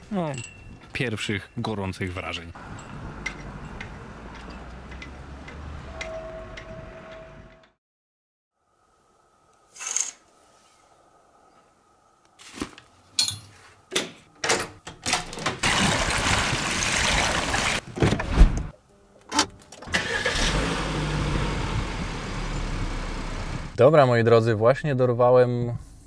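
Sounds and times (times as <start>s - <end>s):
car engine starting and idling: 19.8s - 23.8s.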